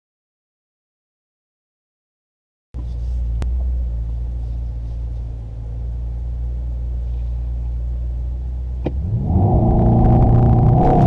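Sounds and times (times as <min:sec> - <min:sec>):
car engine idling: 0:02.8 - 0:11.0.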